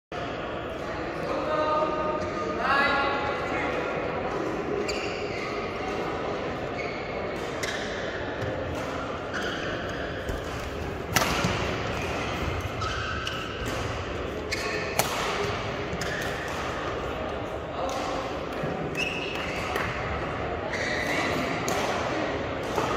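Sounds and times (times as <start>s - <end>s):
racket striking shuttlecock: 10.3s - 16.9s.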